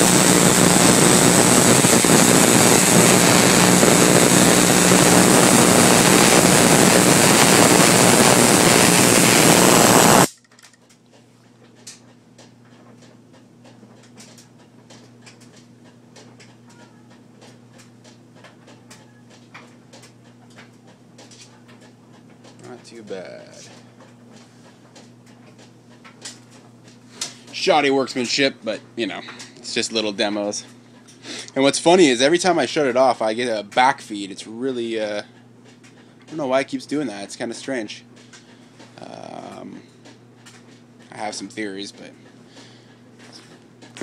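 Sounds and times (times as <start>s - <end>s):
corona discharge hiss and buzz: 0.0s - 10.3s.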